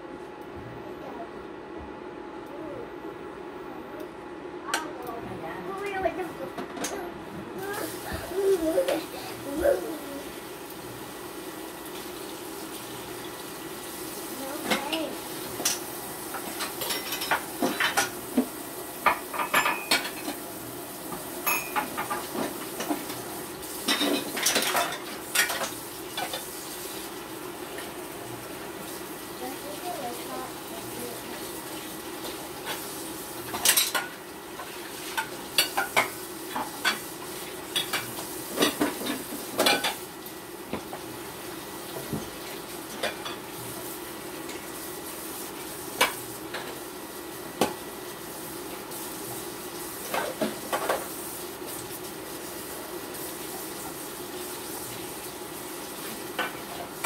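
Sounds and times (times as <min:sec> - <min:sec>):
pancake sizzling in pan: 0:07.6 - 0:57.0
dishes and cutlery clinking: 0:16.4 - 0:18.2, 0:19.1 - 0:20.4, 0:21.4 - 0:23.2, 0:23.8 - 0:26.4, 0:33.5 - 0:34.2.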